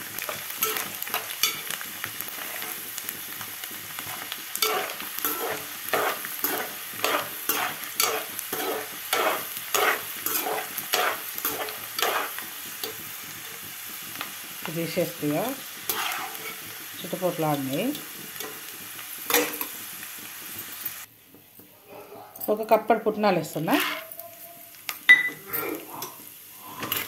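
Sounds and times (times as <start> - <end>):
peanuts sizzling in hot oil: 0.0 - 21.6, 22.4 - 27.0
steel spatula scraping pan: 4.1 - 12.4, 15.8 - 16.7, 23.6 - 24.6.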